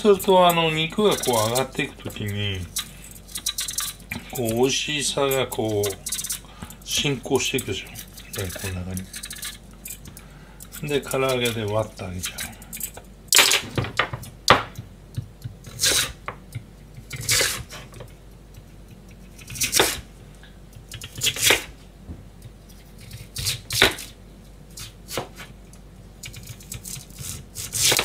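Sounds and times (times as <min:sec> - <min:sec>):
knife cutting on plastic board: 0:17.0 - 0:18.0, 0:19.3 - 0:20.1, 0:21.0 - 0:21.7, 0:22.4 - 0:25.5, 0:26.3 - 0:28.0.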